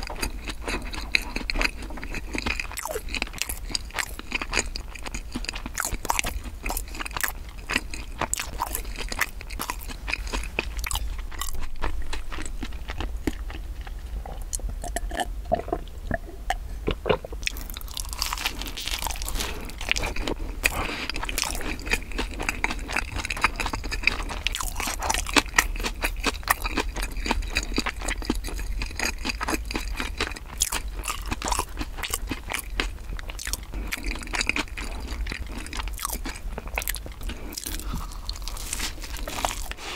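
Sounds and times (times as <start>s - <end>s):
chewing and crunching bread: 0.0s - 39.9s.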